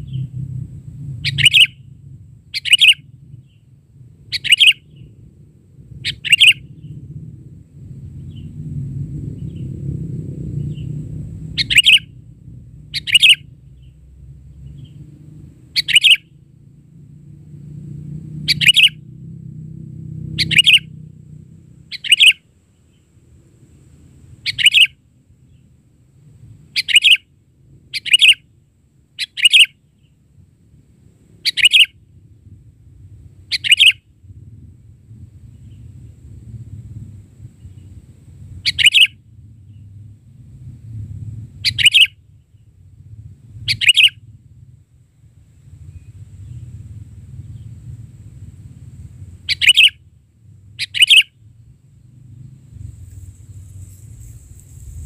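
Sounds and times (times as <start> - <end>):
low rumble: 0.0 - 22.0, 32.0 - 55.0
bulbul chirping calls: 1.2 - 1.9, 2.5 - 3.6, 4.3 - 5.1, 6.0 - 7.0, 11.6 - 12.1, 12.9 - 14.0, 15.8 - 16.3, 18.5 - 19.0, 20.4 - 20.9, 21.9 - 22.4, 24.4 - 25.6, 26.8 - 27.3, 27.9 - 28.4, 29.2 - 30.1, 31.4 - 32.0, 33.5 - 34.0, 38.6 - 39.8, 41.6 - 42.2, 43.7 - 44.2, 49.5 - 50.0, 50.8 - 51.4.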